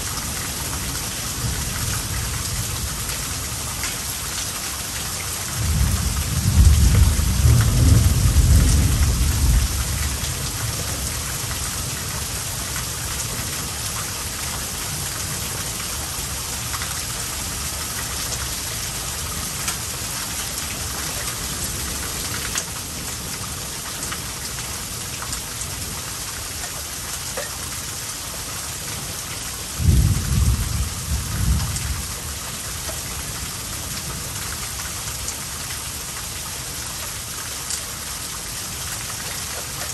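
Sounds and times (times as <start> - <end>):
heavy rain pouring: 0.0 - 39.9
thunder rumbling: 5.6 - 10.6, 29.8 - 32.1.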